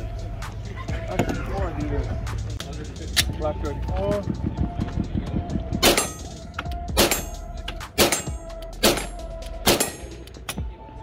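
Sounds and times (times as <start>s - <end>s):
pistol shots: 8.0s - 10.2s.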